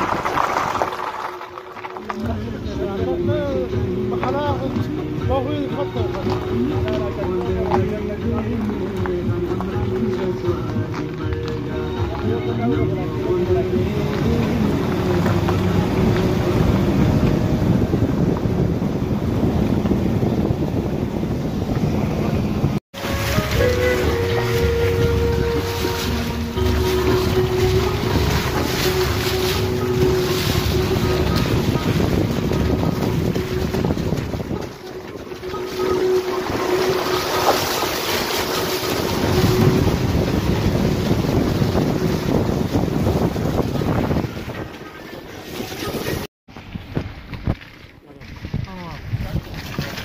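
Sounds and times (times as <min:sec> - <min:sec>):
tyres rolling over wet gravel: 0:00.0 - 0:21.0, 0:21.8 - 0:50.0
tyres splashing through puddles: 0:00.0 - 0:50.0
car engine driving: 0:12.9 - 0:20.8
wind buffeting microphone: 0:13.7 - 0:50.0.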